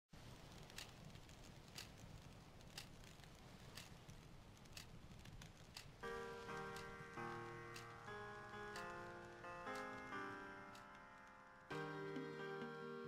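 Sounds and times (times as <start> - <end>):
low hiss: 0.2 - 13.0
music with sustained chords: 6.0 - 13.0.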